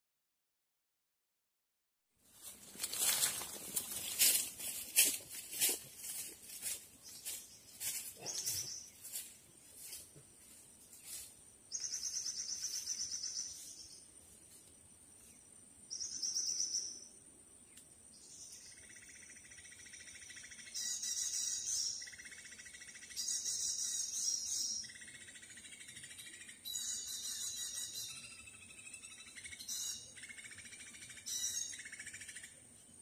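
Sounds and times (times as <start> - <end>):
birds calling in buzzy trills: 2.8 - 10.0, 10.9 - 14.1, 18.1 - 33.0.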